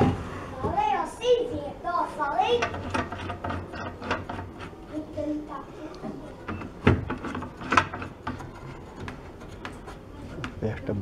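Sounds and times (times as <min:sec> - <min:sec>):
sharp wooden knocks: 0:02.6 - 0:04.8, 0:06.0 - 0:10.6.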